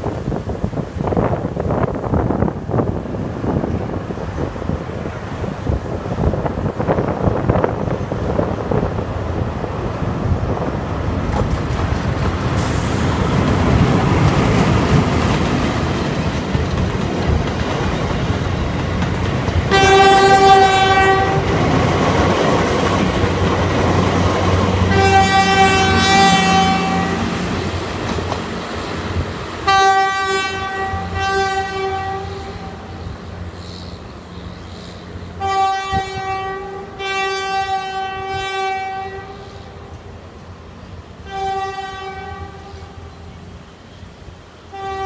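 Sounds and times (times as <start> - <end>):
diesel train rolling past: 0.0 - 45.0
locomotive horn blasts: 19.7 - 21.6, 24.9 - 27.4, 29.6 - 33.0, 35.4 - 39.8, 41.2 - 43.0, 44.7 - 45.0.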